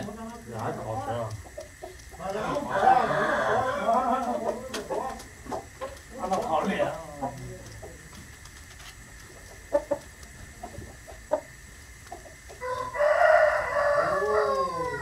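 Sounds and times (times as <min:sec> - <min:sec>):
faint clicks and knocks: 0:00.0 - 0:02.7, 0:03.8 - 0:13.0
rooster crowing: 0:02.2 - 0:05.2, 0:12.6 - 0:15.0.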